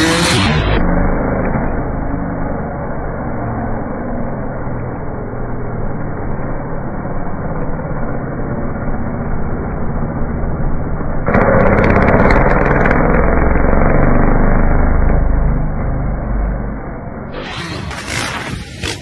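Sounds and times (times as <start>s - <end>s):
motocross bike engine running: 7.4s - 19.0s.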